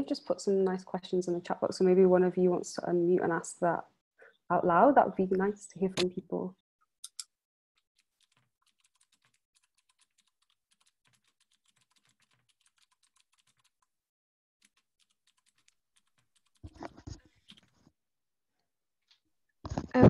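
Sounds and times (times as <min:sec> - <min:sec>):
typing on computer keyboard: 0:07.9 - 0:13.9, 0:14.6 - 0:17.7.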